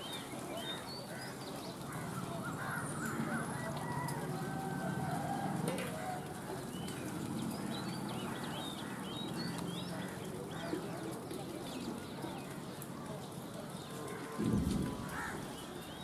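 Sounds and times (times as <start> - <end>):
birds chirping: 0.0 - 16.0
harsh bird caws: 14.2 - 15.8.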